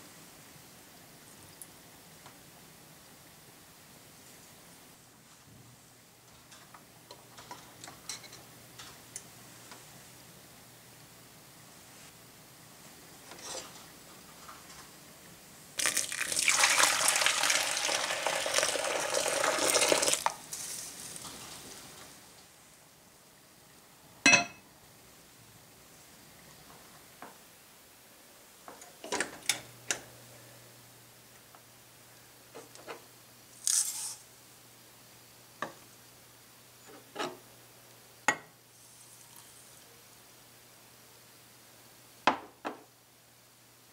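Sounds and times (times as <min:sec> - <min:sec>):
water trickling into pan: 0:15.8 - 0:20.3
milk pouring into pot: 0:15.8 - 0:20.4.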